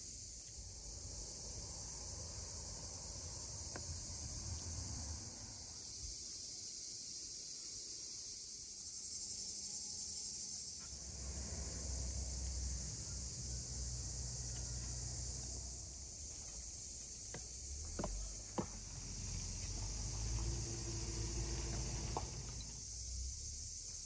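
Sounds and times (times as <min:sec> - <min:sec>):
insect chorus chirring: 0:00.0 - 0:24.0
low rumble: 0:10.9 - 0:17.1.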